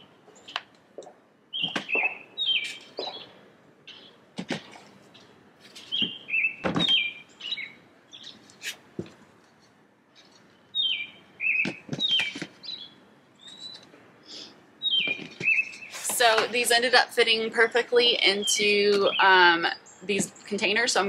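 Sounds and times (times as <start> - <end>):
songbird whistling: 1.5 - 3.3, 5.9 - 8.4, 10.7 - 16.0.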